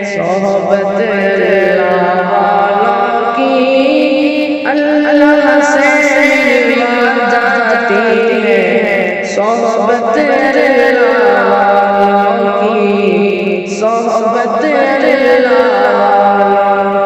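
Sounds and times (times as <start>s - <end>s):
sustained second voice: 0.0s - 10.7s.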